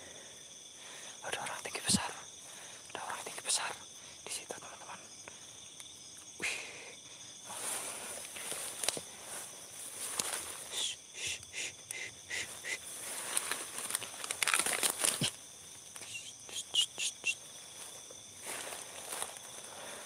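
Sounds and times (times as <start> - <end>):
crickets trilling: 0.0 - 20.0
footsteps through grass: 7.5 - 10.7, 12.5 - 15.4, 17.6 - 20.0.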